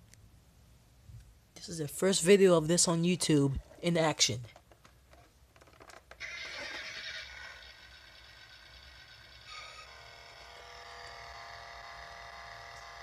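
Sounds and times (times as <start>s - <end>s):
toy car electronic sound effects: 6.2s - 13.0s.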